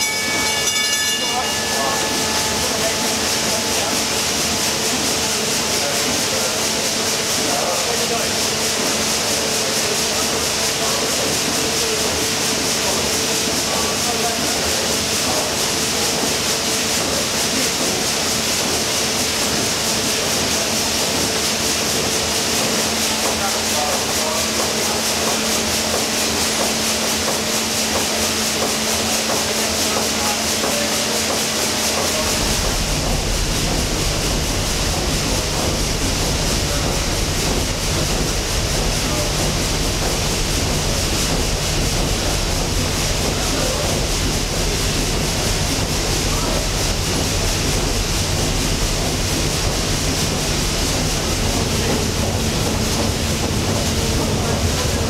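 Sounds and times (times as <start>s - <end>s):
constant mechanical hum: 0.0s - 55.0s
steam engine clattering rhythmically: 0.0s - 55.0s.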